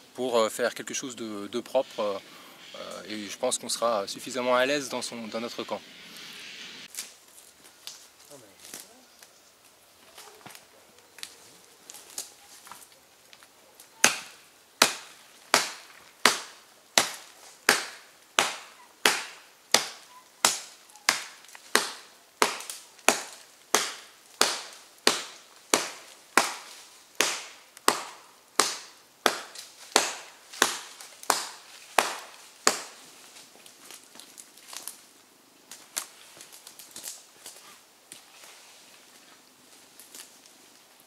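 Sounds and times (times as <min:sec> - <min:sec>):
blade chopping into wood: 0:14.0 - 0:33.0.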